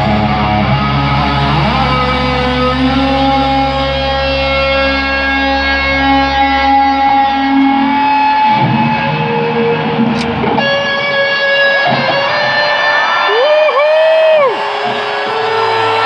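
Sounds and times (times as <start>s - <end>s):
low backing drone: 0.0s - 7.6s
distorted electric guitar solo: 0.0s - 16.0s.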